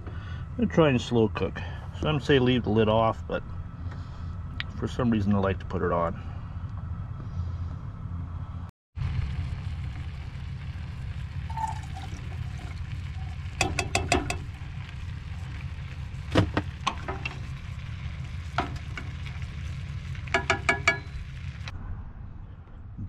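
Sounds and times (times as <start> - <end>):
steady low hum: 0.0 - 23.0
spoon clinking against pot: 13.6 - 14.4.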